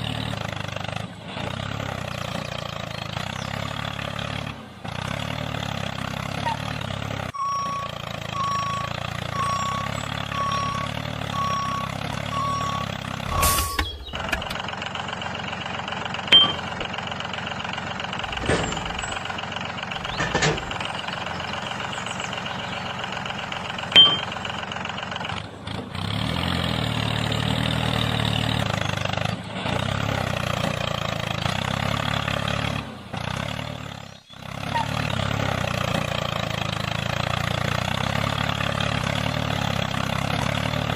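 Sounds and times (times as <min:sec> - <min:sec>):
tractor engine running: 0:00.0 - 0:40.9
reversing beeper: 0:07.4 - 0:14.5, 0:16.3 - 0:16.8, 0:23.9 - 0:24.4.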